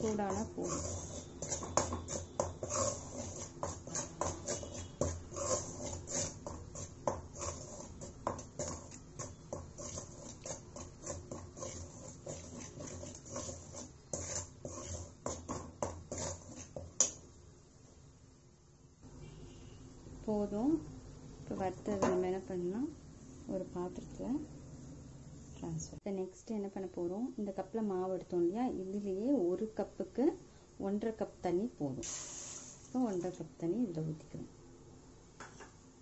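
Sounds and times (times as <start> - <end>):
metal spoon scraping a pan: 0.0 - 17.2.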